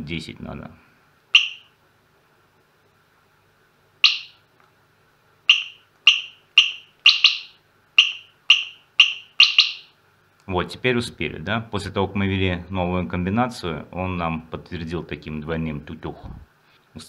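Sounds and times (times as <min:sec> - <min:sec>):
alarm buzzer chirps: 0:01.3 - 0:01.8, 0:04.0 - 0:04.4, 0:05.5 - 0:10.0.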